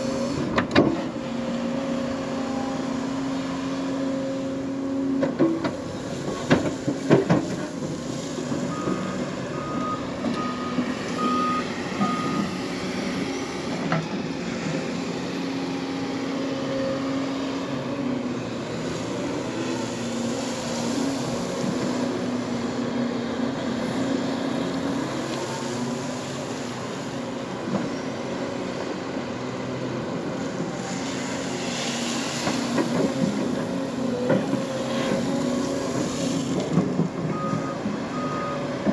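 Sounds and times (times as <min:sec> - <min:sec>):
excavator diesel engine running: 0:00.0 - 0:38.9
travel alarm beeps: 0:09.6 - 0:12.4.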